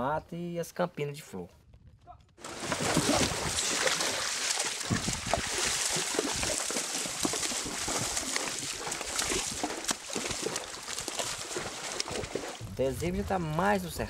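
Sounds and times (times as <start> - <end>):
running water trickling: 2.4 - 12.6
hooves splashing on stones: 2.4 - 13.3.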